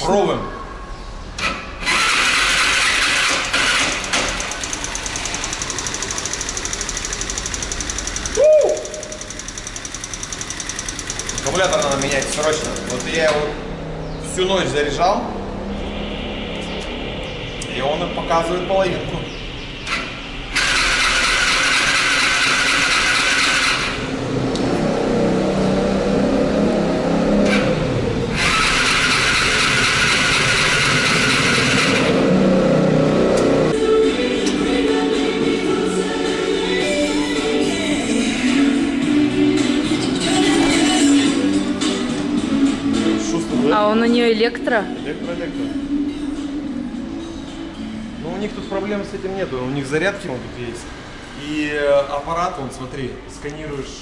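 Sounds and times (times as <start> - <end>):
scooter starter cranking: 1.4 - 13.4, 20.5 - 24.0, 28.4 - 32.1
scooter engine idling: 2.0 - 13.6, 28.4 - 32.0
car engine passing: 9.1 - 37.0
loud pitch-sweeping sound: 11.3 - 20.5.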